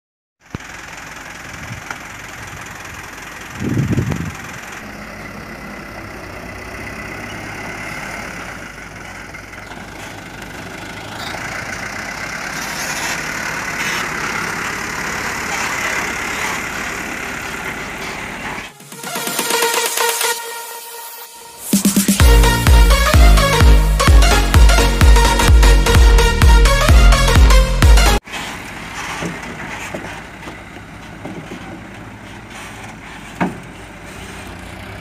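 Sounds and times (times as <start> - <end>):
diesel truck engine running: 0.4 - 35.0
loud low burst: 18.7 - 28.2.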